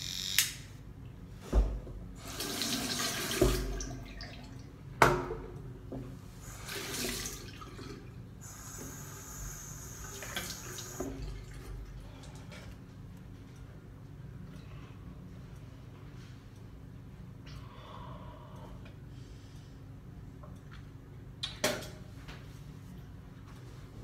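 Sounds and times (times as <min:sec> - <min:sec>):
water running into sink: 0:02.2 - 0:04.5, 0:06.4 - 0:11.8.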